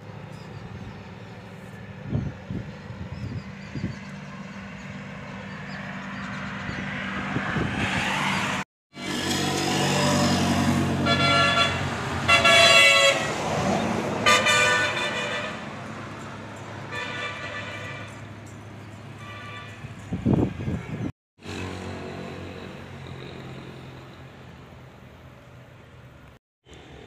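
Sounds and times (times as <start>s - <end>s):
vehicle engine passing: 3.8s - 16.9s
car horn blasts: 11.0s - 13.3s, 14.2s - 15.7s, 16.9s - 18.2s, 19.2s - 19.9s.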